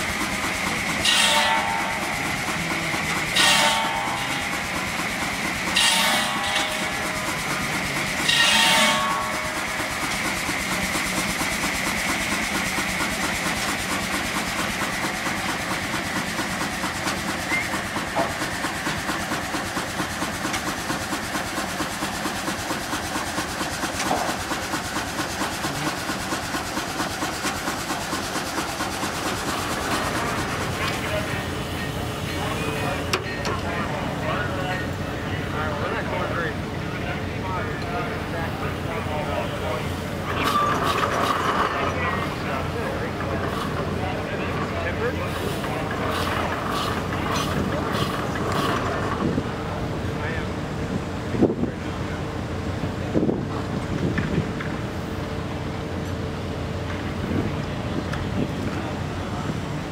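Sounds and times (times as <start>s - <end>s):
steam hissing bursts: 0.0s - 33.0s, 45.2s - 49.2s
steam engine exhaust beat: 0.0s - 59.9s.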